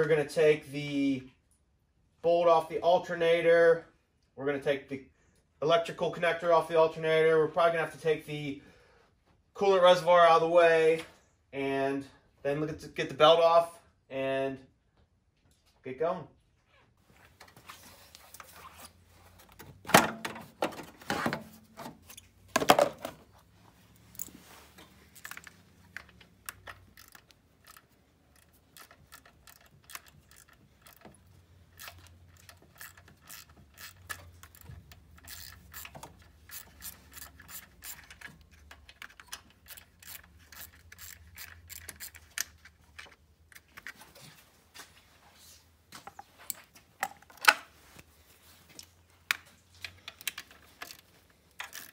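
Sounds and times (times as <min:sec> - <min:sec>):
hand ratchet clicking: 0:25.1 - 0:43.6, 0:50.2 - 0:51.9.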